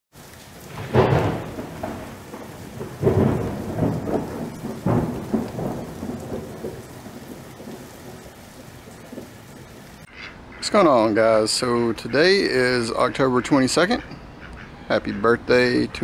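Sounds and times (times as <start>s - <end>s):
rain hiss: 0.1s - 16.0s
thunder claps: 0.2s - 10.1s.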